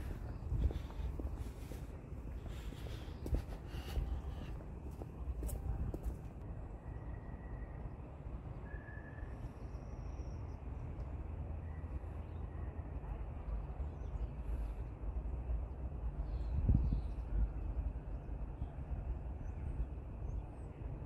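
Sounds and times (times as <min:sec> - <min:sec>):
steady low rumble: 0:00.0 - 0:06.9.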